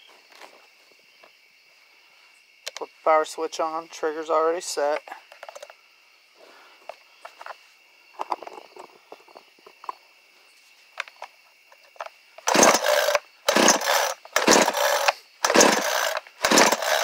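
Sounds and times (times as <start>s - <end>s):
chainsaw recoil starter pulls: 12.4s - 17.0s.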